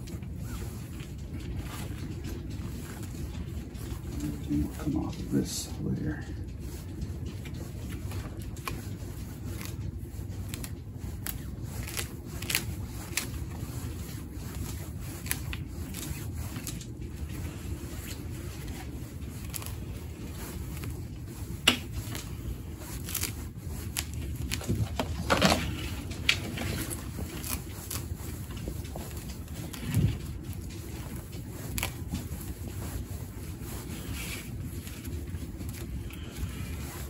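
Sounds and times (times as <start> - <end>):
rake scratching through roots and soil: 0.0 - 37.0.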